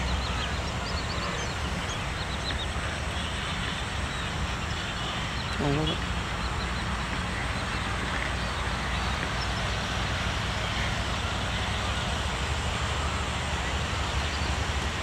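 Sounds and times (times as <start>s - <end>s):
low unsteady rumble: 0.0s - 15.0s.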